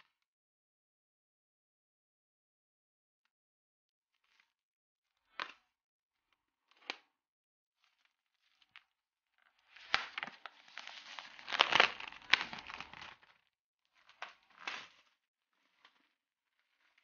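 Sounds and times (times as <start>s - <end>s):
plastic shrink wrap crinkling and tearing: 9.6s - 13.4s, 14.1s - 15.1s.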